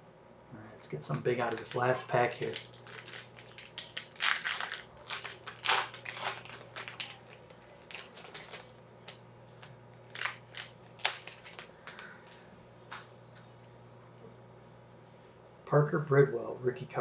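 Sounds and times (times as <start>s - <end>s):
plastic wrapper crinkling and tearing: 1.4s - 12.4s.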